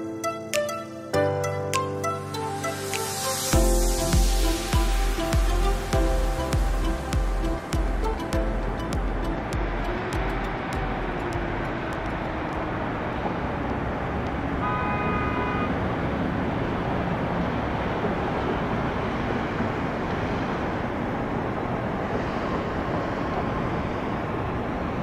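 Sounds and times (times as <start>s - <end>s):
distant traffic rumble: 4.0s - 25.0s
horn toot: 14.6s - 15.8s.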